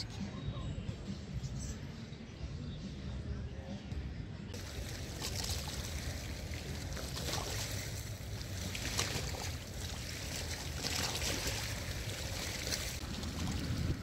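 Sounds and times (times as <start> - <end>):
wind rumbling on microphone: 4.5 - 14.0
waves lapping against rocks: 4.6 - 14.0.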